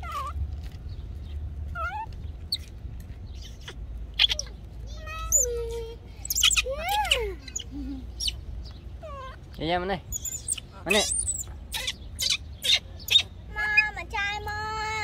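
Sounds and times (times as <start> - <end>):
baby macaque screaming and squealing: 1.8 - 2.1, 3.4 - 4.6, 5.2 - 5.6, 6.2 - 8.4, 9.0 - 9.5, 10.1 - 13.9.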